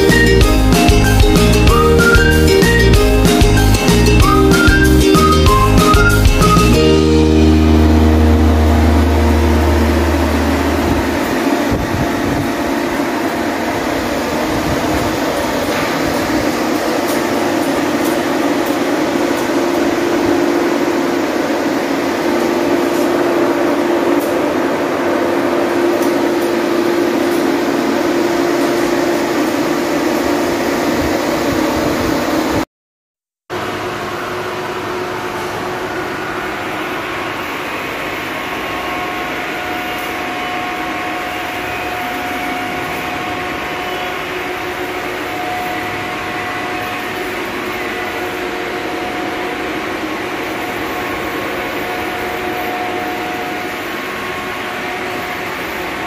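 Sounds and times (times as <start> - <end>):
rushing noise: 0.0 - 32.6
mechanical hum: 0.0 - 32.7, 33.5 - 56.0
deep low tone: 6.7 - 12.4.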